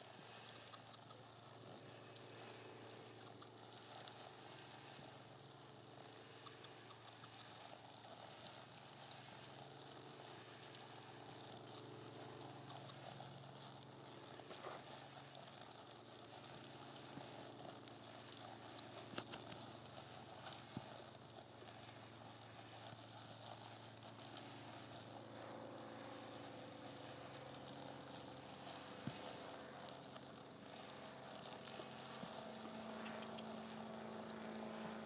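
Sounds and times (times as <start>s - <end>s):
low steady hum: 0.0s - 35.0s.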